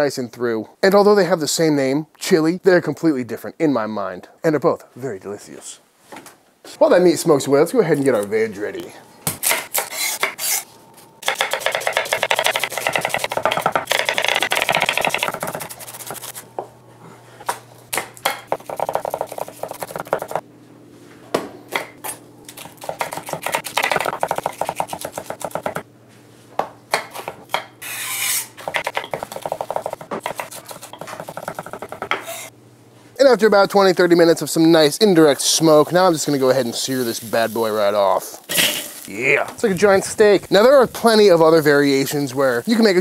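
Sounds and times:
knife scraping board: 0:09.4 - 0:16.4, 0:27.8 - 0:29.5, 0:30.2 - 0:32.5
knife chopping on wooden board: 0:11.2 - 0:16.3, 0:17.9 - 0:20.4, 0:22.6 - 0:25.8, 0:28.3 - 0:32.4.

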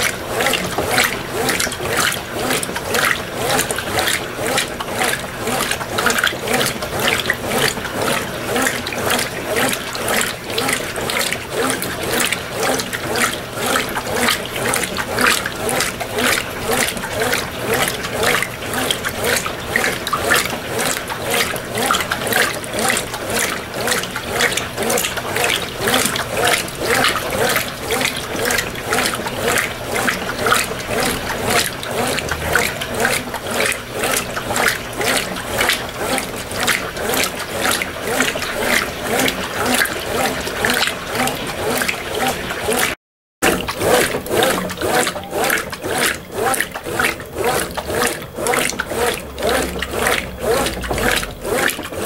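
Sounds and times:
washing machine sloshing: 0:00.0 - 0:52.0.

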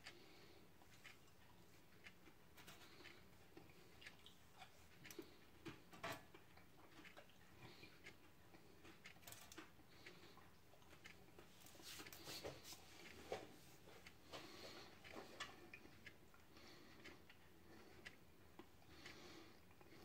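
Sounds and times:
fries tapping and crinkling: 0:02.5 - 0:07.8, 0:08.8 - 0:10.1.

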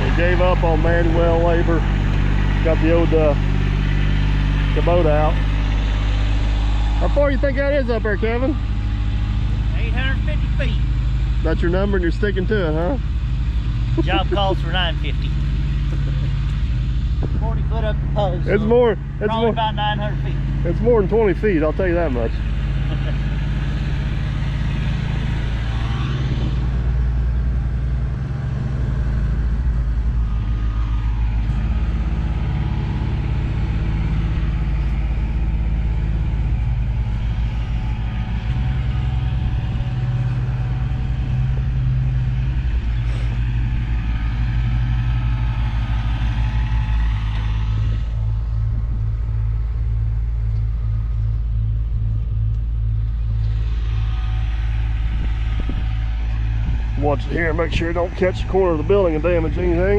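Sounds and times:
excavator diesel engine droning: 0:00.0 - 0:59.9.

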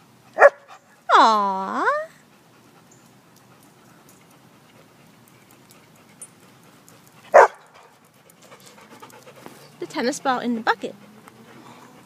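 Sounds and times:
dog barking: 0:00.4 - 0:00.6, 0:07.3 - 0:07.7
faint ticks: 0:03.0 - 0:07.3.

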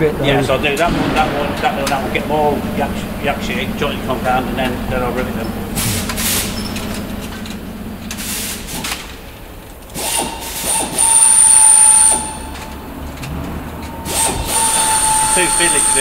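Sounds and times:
power drill whining: 0:03.9 - 0:16.0.

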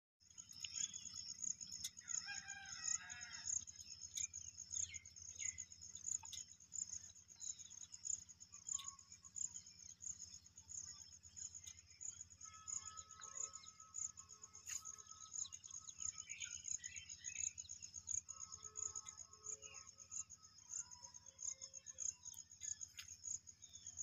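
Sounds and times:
pulsing drone of insects: 0:00.2 - 0:24.0
rooster crowing: 0:02.0 - 0:03.6.

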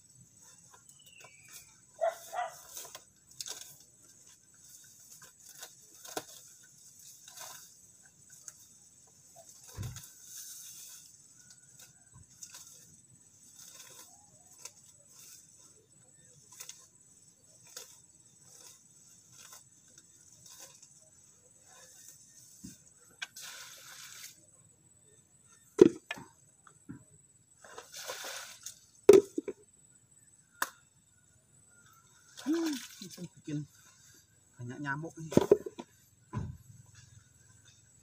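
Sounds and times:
grass being pulled up by hand: 0:00.2 - 0:24.4.

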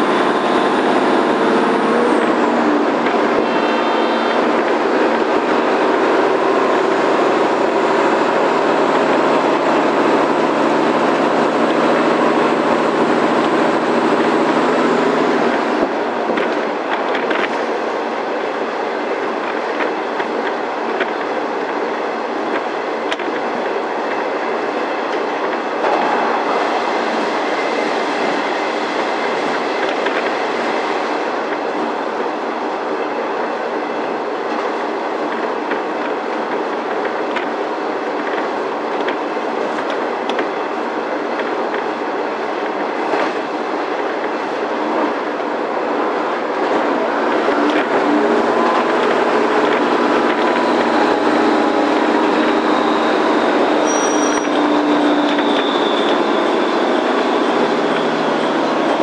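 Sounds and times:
diesel engine drone: 0:00.0 - 0:59.0
train wheels on track: 0:00.0 - 0:59.0
clicks over rail joints: 0:15.5 - 0:17.6, 0:19.4 - 0:21.8, 0:22.5 - 0:24.2, 0:34.5 - 0:40.6.

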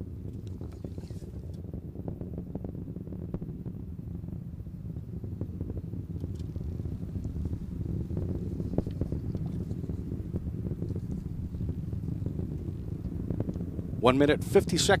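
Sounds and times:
distant rocket engines rumbling: 0:00.0 - 0:15.0
irregular crackle: 0:00.3 - 0:01.6.

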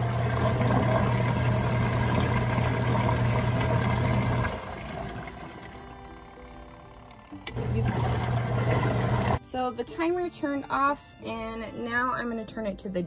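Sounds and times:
water churning in tub: 0:00.0 - 0:06.2, 0:07.6 - 0:09.4
washing machine motor humming: 0:00.0 - 0:09.4.

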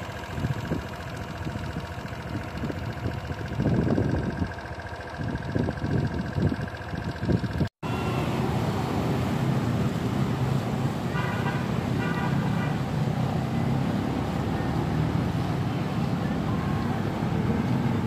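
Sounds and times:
traffic noise: 0:00.0 - 0:18.0
vehicle ride noise: 0:00.0 - 0:18.0
short horn toots: 0:11.1 - 0:12.9.

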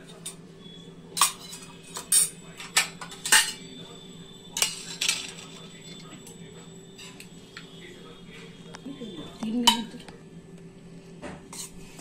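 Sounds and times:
steel utensils clinking on plate: 0:01.1 - 0:03.8, 0:04.5 - 0:07.7, 0:09.3 - 0:10.0.

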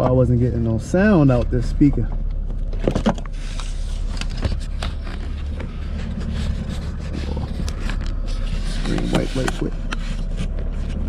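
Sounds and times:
steady low rumble: 0:00.0 - 0:11.0
plastic and wire clicks and scrapes: 0:02.8 - 0:11.0.

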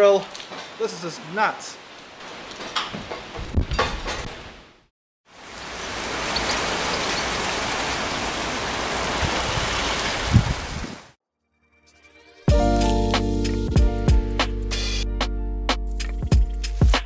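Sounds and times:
heavy rain pouring: 0:00.0 - 0:03.4, 0:05.3 - 0:11.2.

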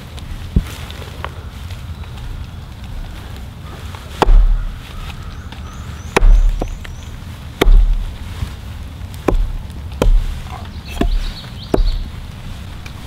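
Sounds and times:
hatchet chopping onto wood: 0:04.2 - 0:04.7, 0:06.2 - 0:06.9, 0:07.6 - 0:08.2, 0:09.2 - 0:12.2.

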